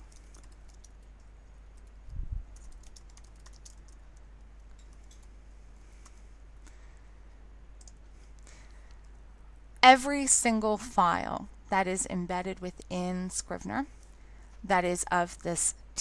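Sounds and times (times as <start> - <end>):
keyboard typing: 0.0 - 2.0, 2.6 - 5.3, 7.8 - 8.0
steady low hum: 0.0 - 16.0.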